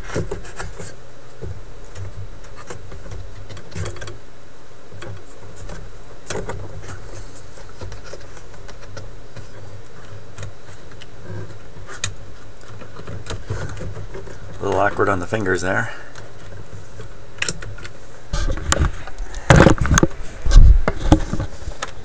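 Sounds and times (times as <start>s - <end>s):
clicks knocks and scrapes: 0.0s - 4.2s, 5.0s - 14.6s, 16.2s - 22.0s
low hum: 14.0s - 22.0s.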